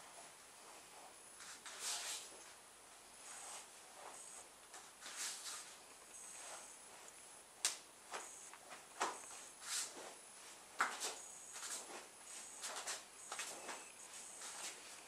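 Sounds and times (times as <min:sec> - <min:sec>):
swishes of moving arms: 0:08.1 - 0:10.2.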